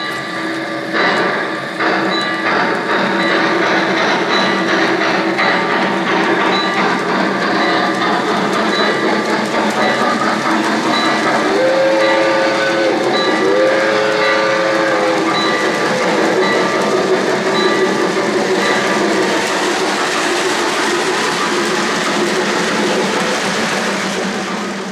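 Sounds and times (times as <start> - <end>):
model train wheels rolling on track: 0.0 - 24.9
model train steam whistle: 11.0 - 18.0.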